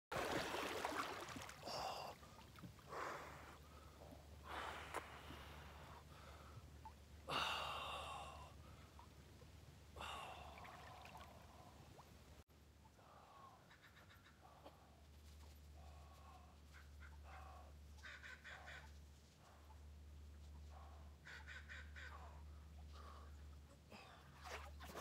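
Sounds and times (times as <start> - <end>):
water sloshing: 0.1 - 2.9
man gasping breaths: 7.3 - 8.8.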